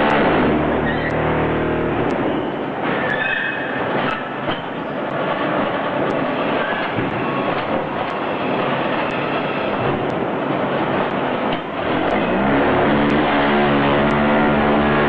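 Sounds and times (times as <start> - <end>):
block making machine din: 0.0 - 2.2, 11.5 - 15.0.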